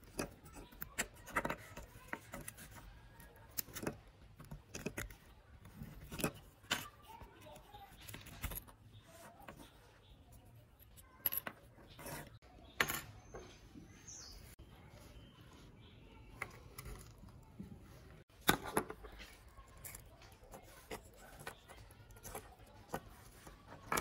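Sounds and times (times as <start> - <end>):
clatter of small parts: 0.0 - 9.8, 18.4 - 24.0
small clicks and scrapes of parts: 0.0 - 13.6, 16.3 - 24.0.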